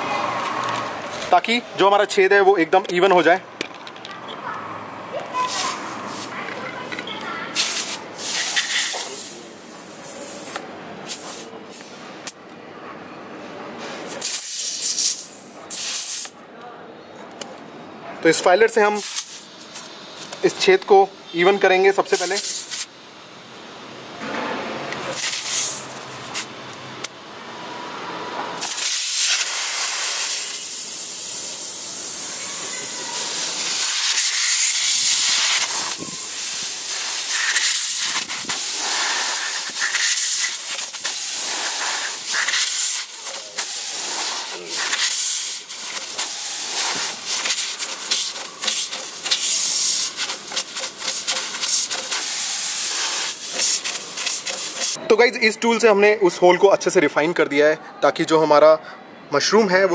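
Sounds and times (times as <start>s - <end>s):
air hissing out of a tyre: 5.3s - 6.4s, 7.2s - 12.1s, 13.9s - 16.4s, 18.9s - 20.3s, 22.1s - 22.9s, 25.1s - 27.1s, 27.8s - 55.0s.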